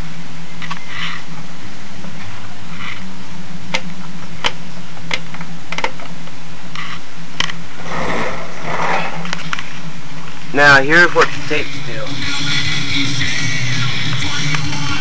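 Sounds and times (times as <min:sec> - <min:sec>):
cassette deck hum: 0:00.0 - 0:15.0
rustle: 0:06.0 - 0:10.5.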